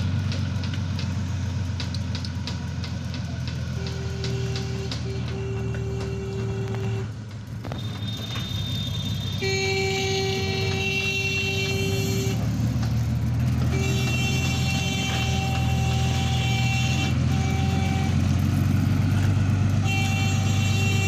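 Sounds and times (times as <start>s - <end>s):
vehicle engine rumble: 0.0s - 21.0s
vehicle horn blasts: 3.6s - 12.7s, 13.5s - 21.0s.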